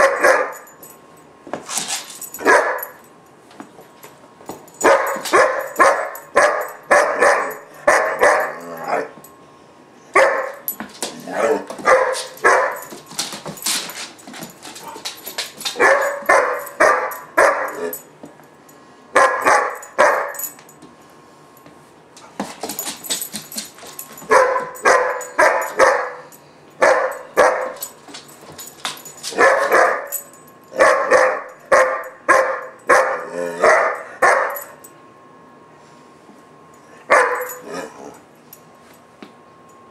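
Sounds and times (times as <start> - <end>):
puppy barking: 0.0 - 0.7, 2.4 - 3.0, 4.8 - 9.2, 10.2 - 10.7, 11.4 - 12.9, 15.8 - 17.9, 19.2 - 20.4, 24.3 - 27.8, 29.3 - 30.1, 30.8 - 34.8, 37.1 - 37.6.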